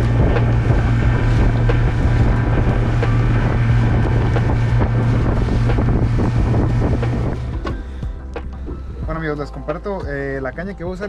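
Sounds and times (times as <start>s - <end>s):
hull slapping through water: 0.0s - 8.5s
boat motor droning: 0.0s - 9.4s
wind buffeting microphone: 0.0s - 9.4s.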